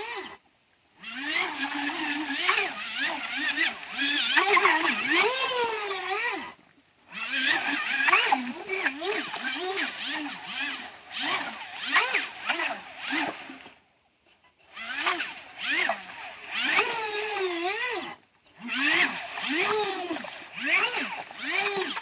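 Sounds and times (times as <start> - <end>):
electric motor whining: 0.0 - 0.4, 1.0 - 13.8, 14.6 - 22.0.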